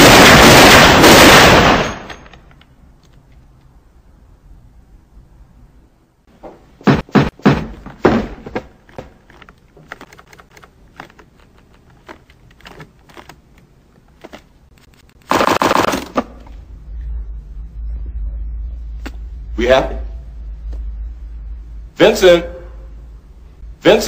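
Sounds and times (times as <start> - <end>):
loud harsh burst: 0.0 - 2.1.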